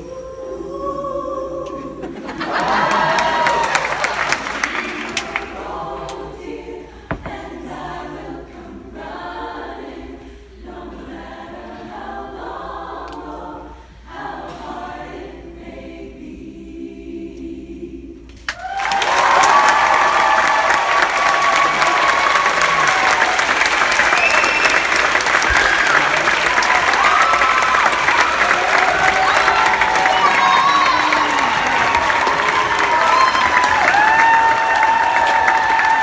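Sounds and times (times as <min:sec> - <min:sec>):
women's choir singing a cappella: 0:00.0 - 0:18.5.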